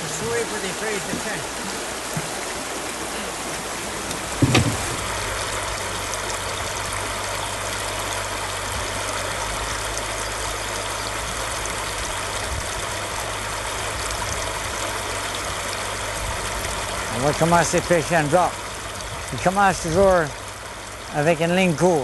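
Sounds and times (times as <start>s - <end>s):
river water rushing: 0.0s - 22.0s
sharp thump: 4.4s - 5.1s.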